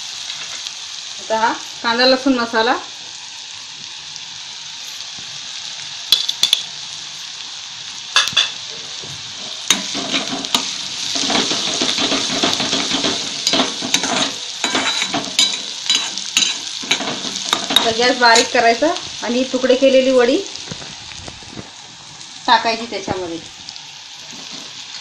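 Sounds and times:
onions sizzling in oil: 0.0 - 25.0
spoon stirring and scraping pan: 8.2 - 19.2, 24.2 - 25.0
steel spoon knocking on pan: 9.7 - 18.5.

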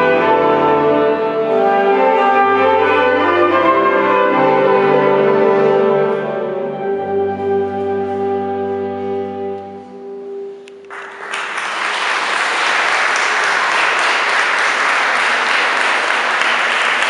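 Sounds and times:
wind band holding a chord: 0.0 - 11.1
audience applause: 10.9 - 17.0.

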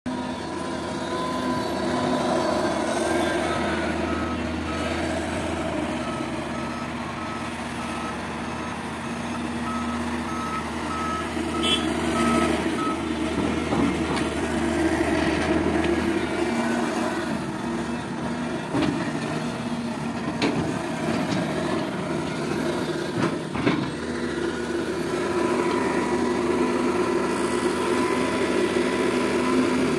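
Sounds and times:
excavator diesel engine and hydraulics: 0.1 - 29.9
back-up alarm beeping: 9.6 - 13.1.

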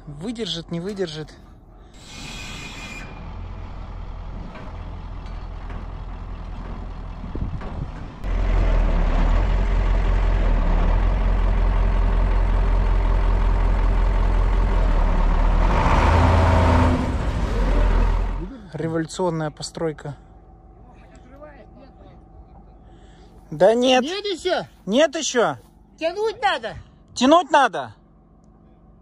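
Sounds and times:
truck engine running: 3.1 - 26.6.

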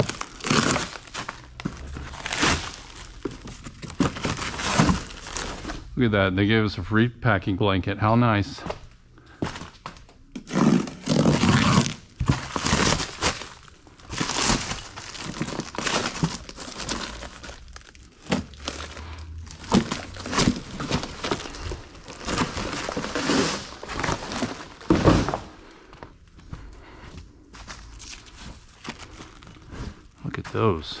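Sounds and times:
packaging crinkling and tearing: 0.0 - 5.9, 9.5 - 25.6, 27.7 - 30.2.

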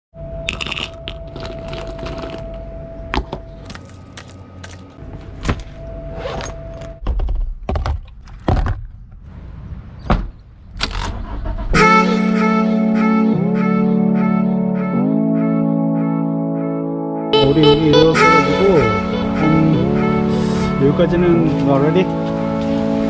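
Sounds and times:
steady electronic tone: 11.8 - 21.0
loud guitar music: 11.8 - 23.0.

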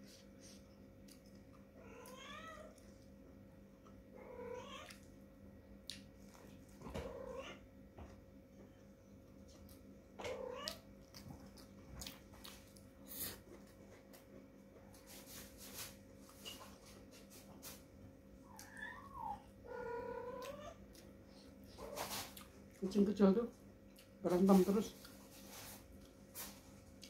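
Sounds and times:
kitten meowing: 18.5 - 20.8.

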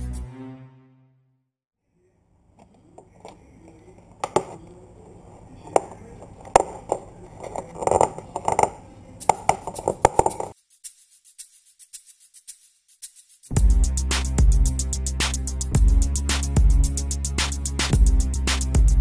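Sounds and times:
plastic shell clicks and crackles: 2.6 - 10.6.

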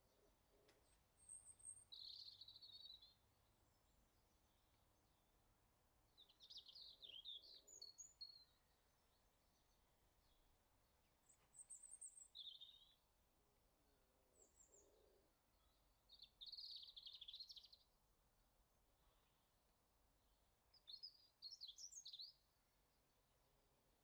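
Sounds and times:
small birds chirping: 0.0 - 5.5, 6.1 - 13.1, 14.3 - 18.0, 20.2 - 23.1.

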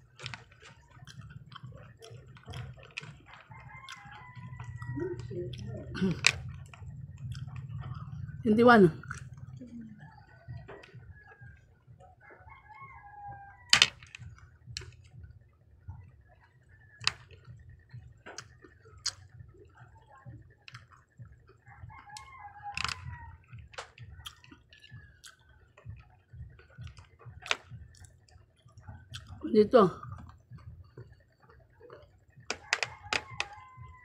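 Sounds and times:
chopsticks tapping candies: 0.0 - 8.0, 13.7 - 15.0, 22.8 - 23.1, 26.8 - 27.6, 32.5 - 33.7
rooster crowing: 3.4 - 5.9, 9.9 - 14.2, 21.6 - 23.7, 32.5 - 34.0.

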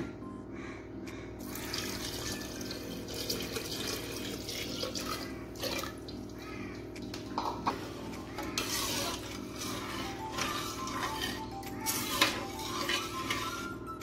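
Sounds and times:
liquid pouring and splashing: 1.4 - 6.4.

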